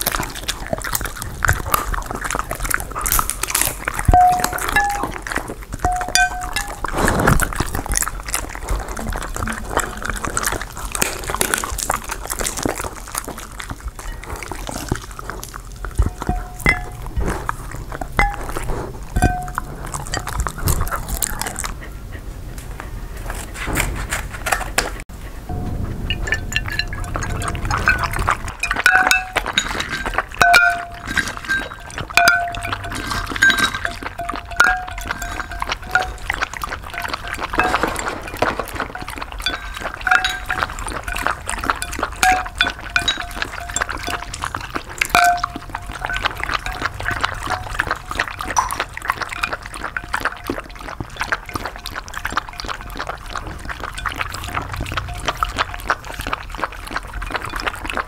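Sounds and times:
ice cubes clinking: 0:00.0 - 0:21.3, 0:26.1 - 0:58.0
dogs lapping and slurping: 0:00.0 - 0:58.0
ceramic bowls ringing: 0:04.1 - 0:06.9, 0:16.0 - 0:17.2, 0:18.2 - 0:18.6, 0:19.2 - 0:20.5, 0:25.5 - 0:50.4, 0:54.0 - 0:56.0.

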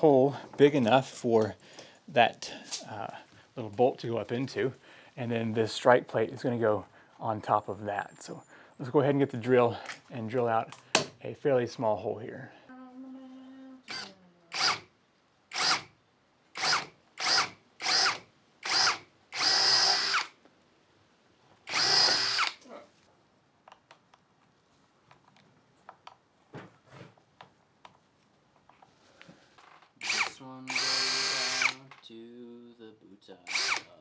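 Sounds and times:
cordless drill drilling: 0:13.9 - 0:14.9, 0:15.5 - 0:15.9, 0:16.6 - 0:20.4, 0:21.6 - 0:22.6, 0:30.0 - 0:31.9, 0:33.5 - 0:34.0.

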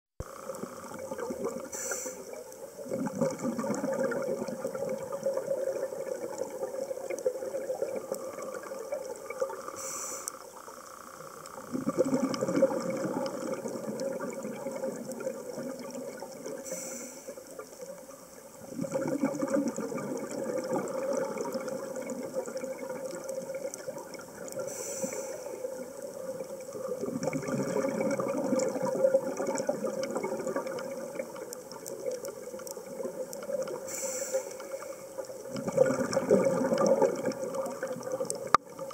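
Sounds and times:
exhaled bubbles rushing: 0:00.2 - 0:09.8, 0:11.5 - 0:16.6, 0:18.6 - 0:33.9, 0:35.2 - 0:38.9
regulator inhalation hiss: 0:01.6 - 0:02.5, 0:09.6 - 0:11.6, 0:16.5 - 0:17.7, 0:24.6 - 0:26.0, 0:33.8 - 0:35.2.

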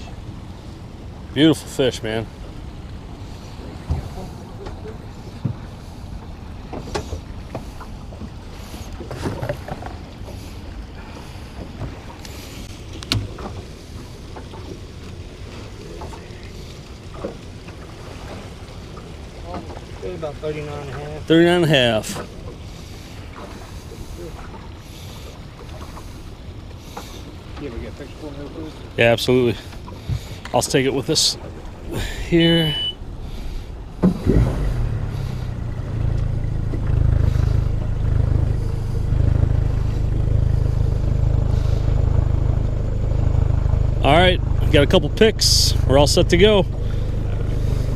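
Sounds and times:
outboard motor running: 0:00.0 - 0:47.9.

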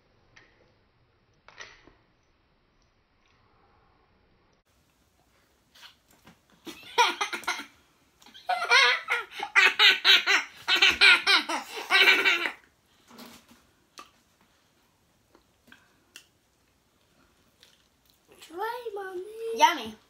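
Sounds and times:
woman and children laughing: 0:06.7 - 0:07.7, 0:08.3 - 0:12.6.

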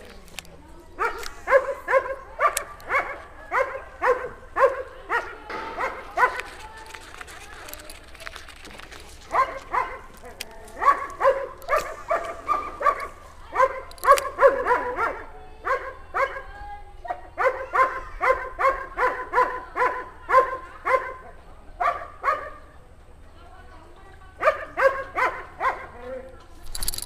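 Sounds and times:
dog barking: 0:01.0 - 0:06.5, 0:09.3 - 0:16.5, 0:17.1 - 0:21.2, 0:21.8 - 0:22.6, 0:24.4 - 0:26.1.

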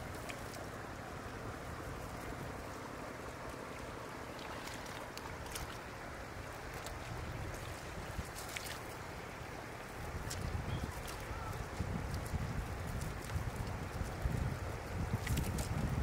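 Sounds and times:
floodwater: 0:00.0 - 0:16.0
wind: 0:00.0 - 0:16.0
light splashes in water: 0:03.5 - 0:06.0, 0:06.6 - 0:09.0, 0:15.1 - 0:15.9.

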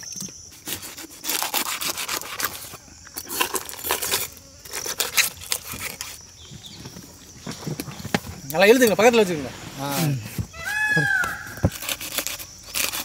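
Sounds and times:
knife scraping through fish: 0:00.5 - 0:06.2, 0:11.7 - 0:13.0.

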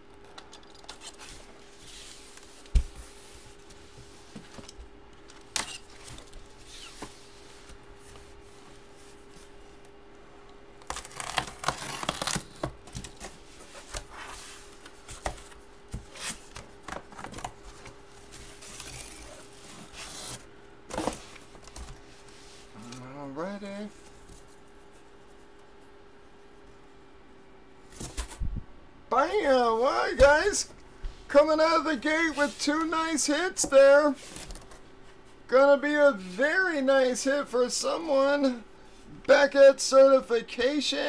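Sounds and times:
cardboard tearing and rustling: 0:10.8 - 0:22.0.

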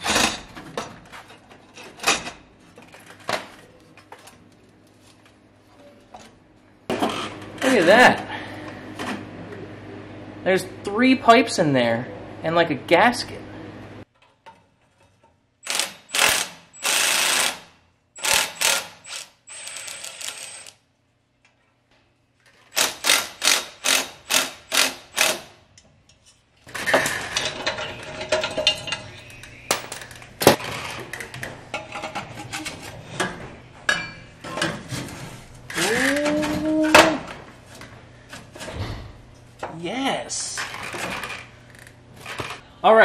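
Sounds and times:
electric ratchet whirring: 0:15.6 - 0:20.8.

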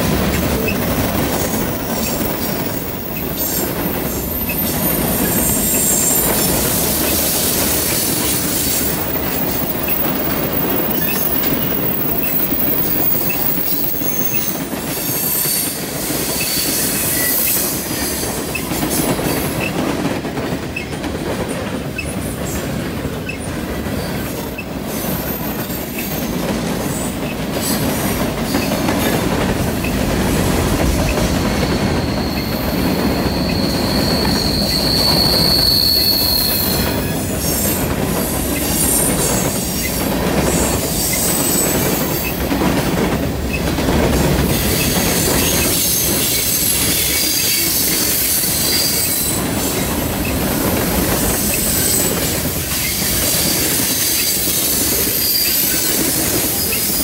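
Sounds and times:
train wheels rumbling on rail: 0:00.0 - 0:57.0
high wheel squeal: 0:00.5 - 0:18.6, 0:31.0 - 0:42.4, 0:44.4 - 0:50.4, 0:51.1 - 0:57.0.

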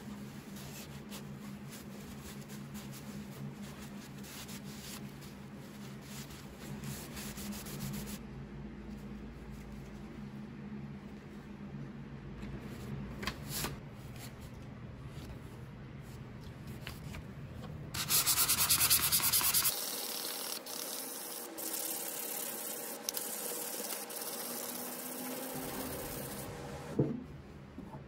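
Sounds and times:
sandpaper rubbing on steel: 0:18.0 - 0:26.5.

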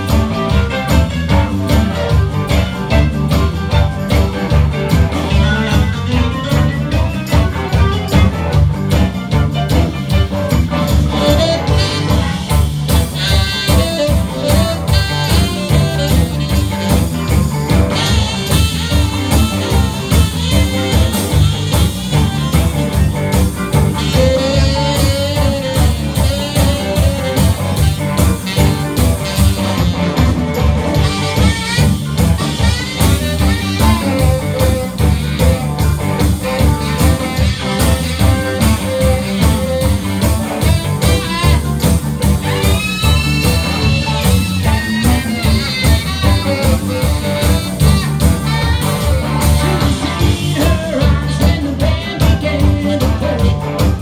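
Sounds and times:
live rock band playing: 0:00.0 - 0:54.0.

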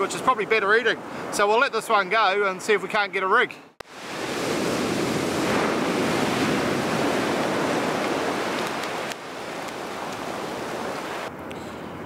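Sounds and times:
waves washing on shingle beach: 0:03.8 - 0:11.3.

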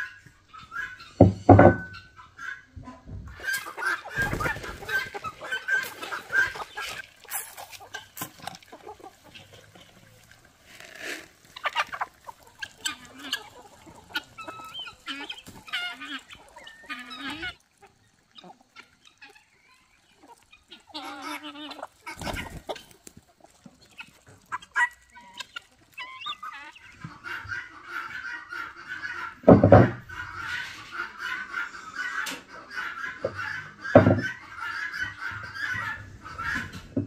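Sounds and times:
chickens clucking: 0:00.0 - 0:37.0
loud thump: 0:01.2 - 0:01.9.

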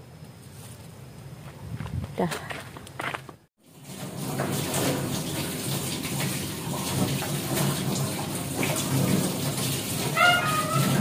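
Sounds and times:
tap water splashing into sink: 0:03.7 - 0:11.0.

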